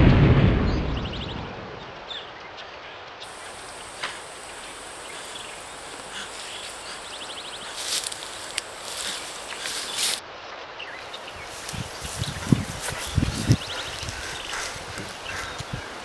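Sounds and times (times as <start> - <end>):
leaves rustling: 3.2 - 16.0
insect trills: 3.3 - 10.2
steady soft hiss: 3.3 - 10.2.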